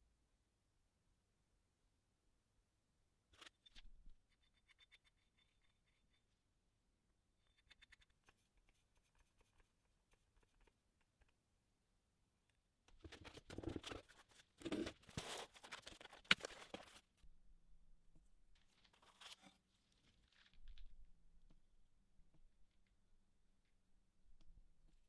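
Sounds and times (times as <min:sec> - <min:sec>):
packaging rustling and crinkling: 0:13.1 - 0:17.0.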